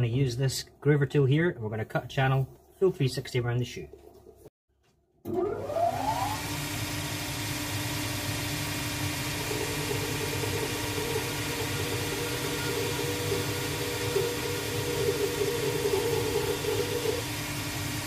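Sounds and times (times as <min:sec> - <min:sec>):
machine motor humming: 0:06.3 - 0:18.0
bit cutting leather whine: 0:09.0 - 0:17.4.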